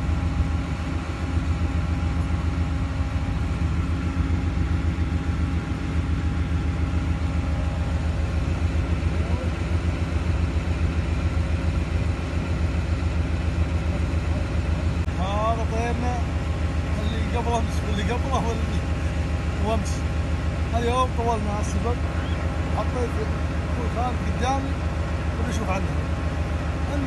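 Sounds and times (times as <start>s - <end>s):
vehicle engine idling: 0.0s - 27.0s.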